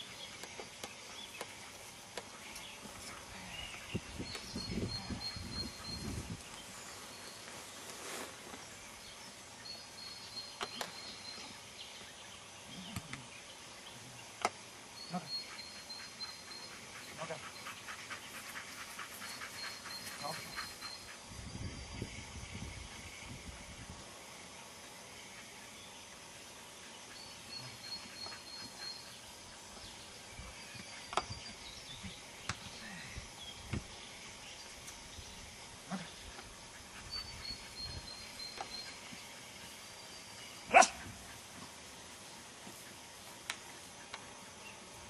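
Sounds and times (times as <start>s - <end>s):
steady background hiss: 0.0s - 45.0s
faint high chirping: 3.5s - 7.6s.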